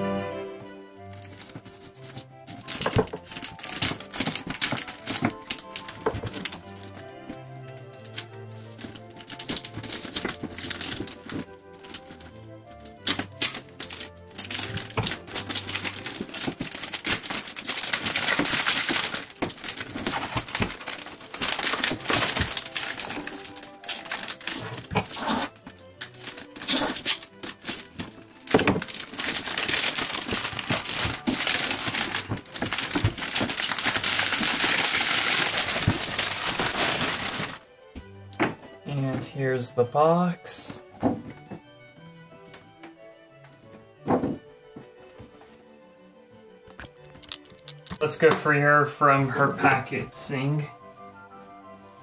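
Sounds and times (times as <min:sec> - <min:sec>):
plastic wrap crinkling and tearing: 0:01.1 - 0:37.6, 0:46.7 - 0:48.1
cardboard box rustling and scraping: 0:24.4 - 0:25.6.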